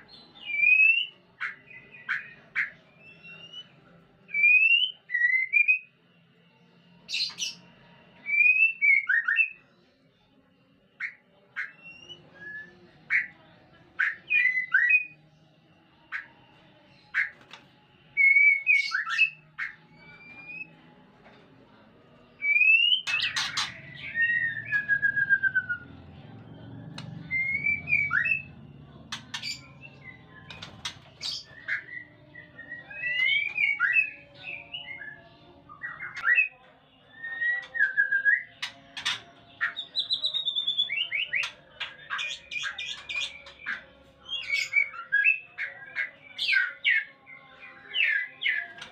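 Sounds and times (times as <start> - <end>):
birds whistling calls: 18.2 - 20.7, 22.4 - 25.9, 26.9 - 28.5, 29.1 - 47.1.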